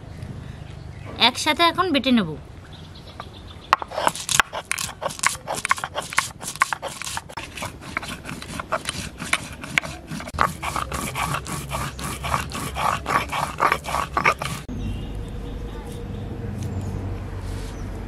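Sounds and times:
stone roller scraping on stone slab: 0:03.8 - 0:14.7.

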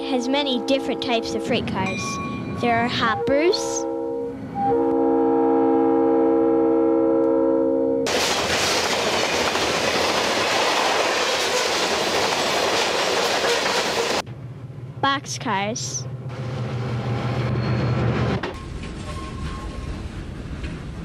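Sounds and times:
train air horn: 0:00.4 - 0:01.7, 0:03.1 - 0:08.1
freight cars rumbling on rails: 0:08.1 - 0:21.0.

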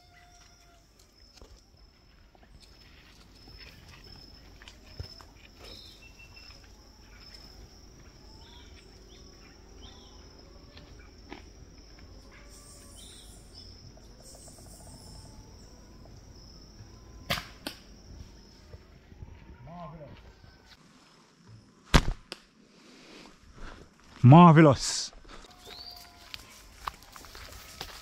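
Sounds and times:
high insect drone: 0:00.0 - 0:21.6, 0:23.6 - 0:28.0
faint bird chirps: 0:02.8 - 0:11.2, 0:12.2 - 0:17.3, 0:25.5 - 0:26.4.

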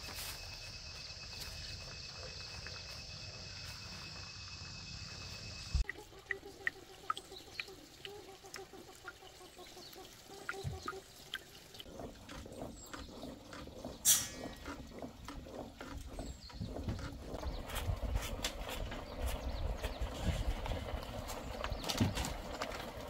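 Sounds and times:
water dripping and trickling: 0:05.8 - 0:17.8
pot bubbling: 0:05.8 - 0:21.6.

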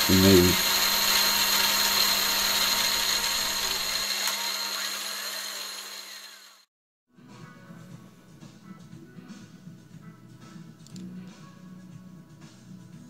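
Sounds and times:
milling machine whirring: 0:00.0 - 0:06.7
quiet background music: 0:07.1 - 0:13.0.

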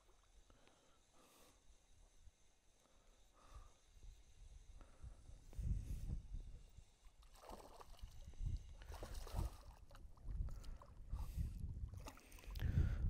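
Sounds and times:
fish splashing and thrashing: 0:07.1 - 0:11.1
low gusty rumble: 0:12.6 - 0:13.0.

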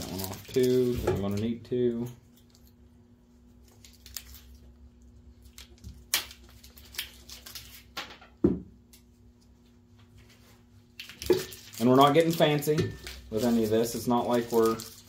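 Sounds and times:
plastic wire loom crinkling: 0:00.0 - 0:01.5, 0:11.1 - 0:15.0.

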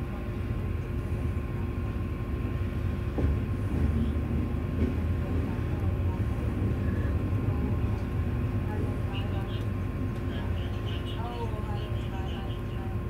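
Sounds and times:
railway carriage rumbling: 0:00.0 - 0:13.0
faint steady hum: 0:05.6 - 0:13.0.

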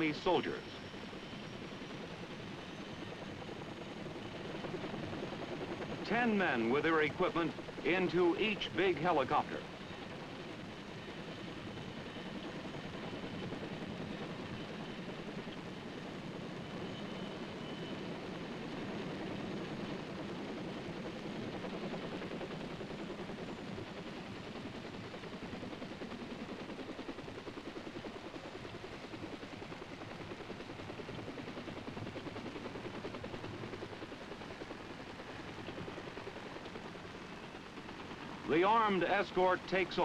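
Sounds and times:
helicopter rotors chopping: 0:00.0 - 0:40.0
steady engine noise: 0:34.8 - 0:40.0.

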